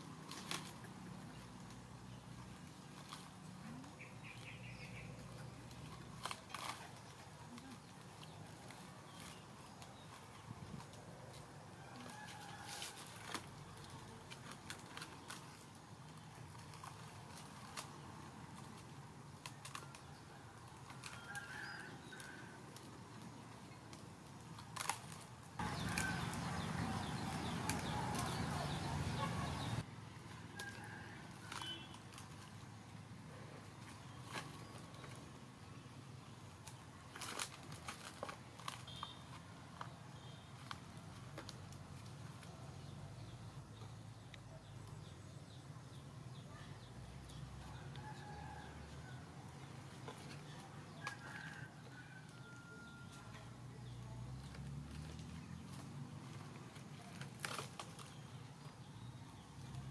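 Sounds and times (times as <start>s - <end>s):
birds chirping: 0.9s - 10.9s, 25.6s - 29.9s
faint bird chirp: 30.9s - 32.0s, 38.8s - 39.3s.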